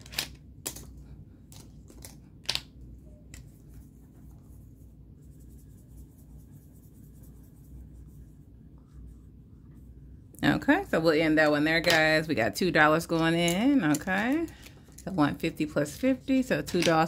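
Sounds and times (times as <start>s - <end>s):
plastic chips clicking down: 0.0s - 0.9s.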